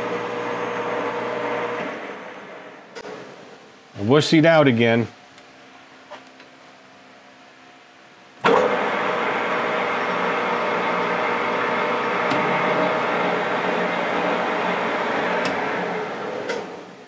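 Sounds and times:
metal lathe whining: 8.5s - 16.8s.

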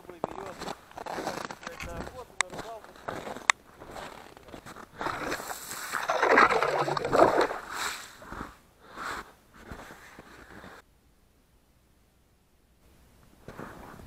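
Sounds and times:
ice auger scraping through ice: 3.0s - 10.8s.

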